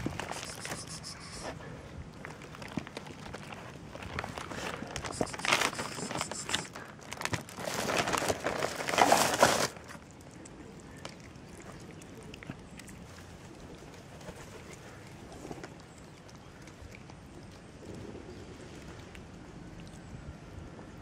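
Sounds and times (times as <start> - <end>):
plastic bag rustling: 2.3 - 10.0.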